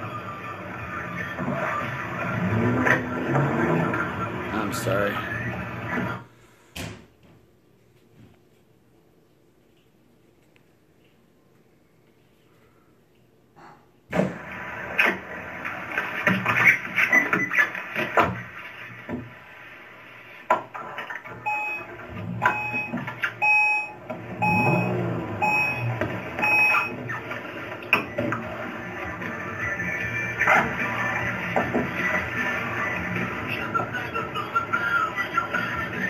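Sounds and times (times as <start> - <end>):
car warning chime beeping: 21.4 - 27.0.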